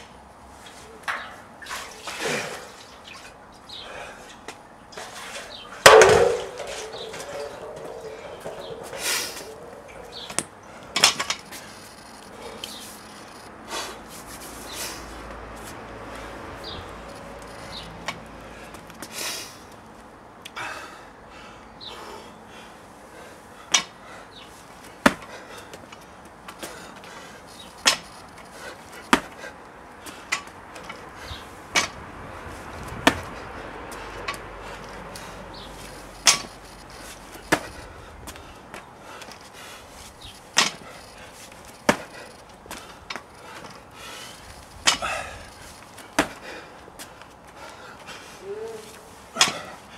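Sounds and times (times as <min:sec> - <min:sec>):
hard breathing: 0:03.7 - 0:04.5, 0:06.6 - 0:12.9, 0:20.5 - 0:24.6, 0:33.2 - 0:36.2, 0:36.8 - 0:49.9
barbell clanking: 0:05.8 - 0:10.4.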